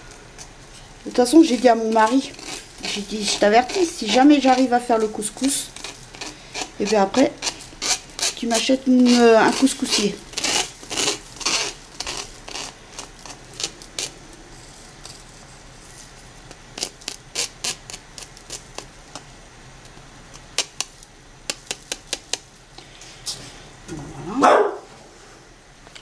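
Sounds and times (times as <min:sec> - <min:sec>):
dog yelping: 0:23.9 - 0:24.9.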